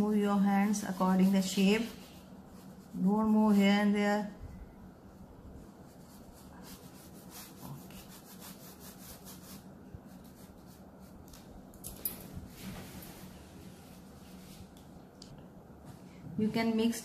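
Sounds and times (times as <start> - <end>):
oil pastel rubbing on paper: 0.3 - 4.4, 5.0 - 11.2.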